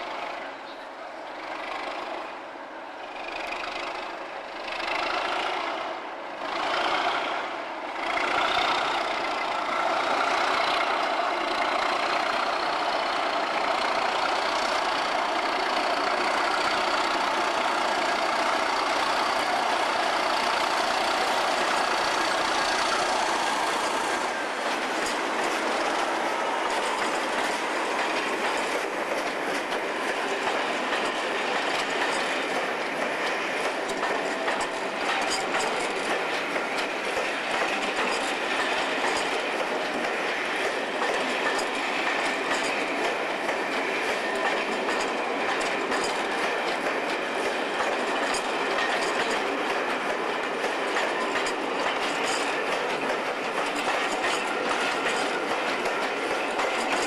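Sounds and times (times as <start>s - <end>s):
diesel locomotive engines working hard: 0.0s - 57.0s
train wheels clacking over rail joints: 3.0s - 57.0s.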